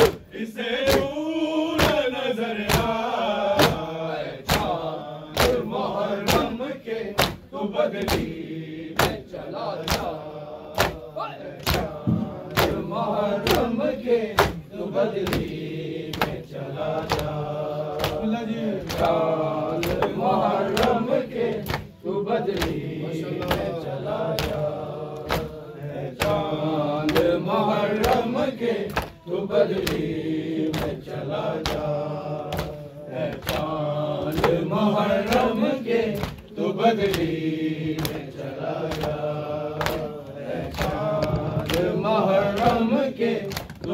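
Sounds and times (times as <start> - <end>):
chest beating slaps: 0.0 - 43.9
voices chanting a lament: 0.0 - 43.9.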